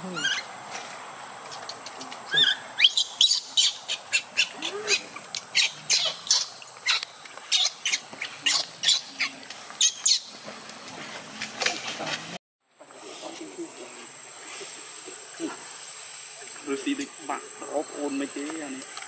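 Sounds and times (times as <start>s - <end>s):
baby macaque squealing: 0.0s - 0.5s, 2.3s - 10.3s.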